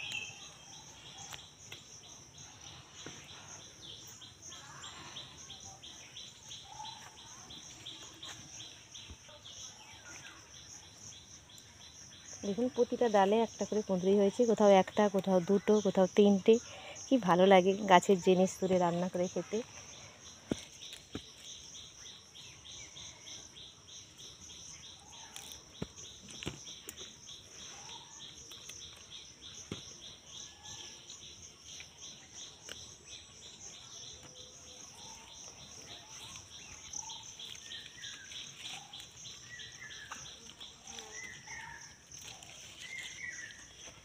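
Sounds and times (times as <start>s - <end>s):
bird chirps: 0.0s - 13.9s
insects trilling: 0.0s - 44.0s
clicks and leaf rustles: 18.6s - 21.6s, 25.0s - 30.0s, 35.8s - 44.0s.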